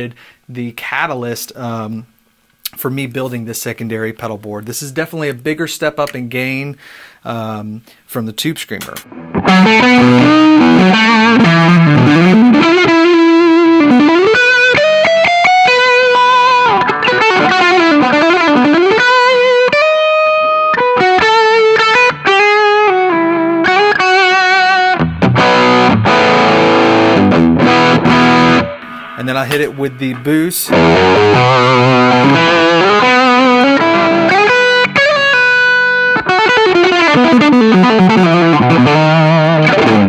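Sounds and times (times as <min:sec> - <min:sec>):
distorted electric guitar: 0:08.8 - 0:40.0.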